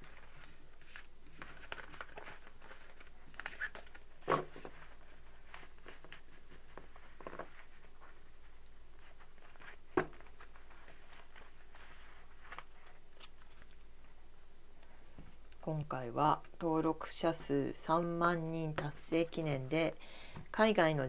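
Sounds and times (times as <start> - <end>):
cards rustling: 0.0 - 8.2, 9.0 - 14.1.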